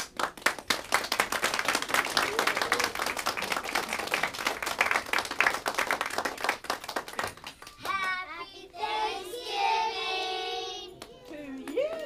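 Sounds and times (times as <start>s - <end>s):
audience applause: 0.0s - 7.7s
voices among claps: 0.0s - 8.2s, 10.2s - 12.0s.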